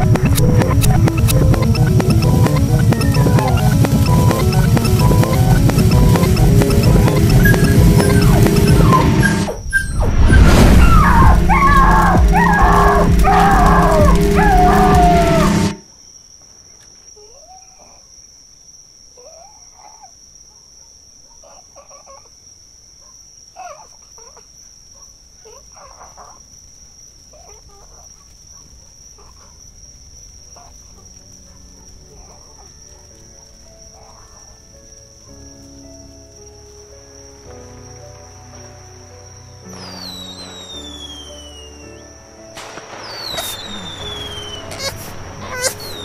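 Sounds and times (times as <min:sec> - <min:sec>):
harsh distorted noise: 0:00.0 - 0:15.8
wailing cries falling in pitch: 0:10.4 - 0:15.8, 0:43.3 - 0:46.0
high-pitched insect trill: 0:25.4 - 0:46.0.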